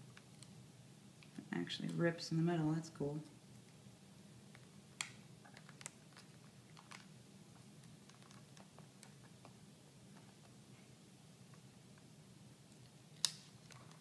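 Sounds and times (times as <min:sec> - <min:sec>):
plastic liner peeling crackle: 0:04.5 - 0:10.6, 0:13.2 - 0:14.0.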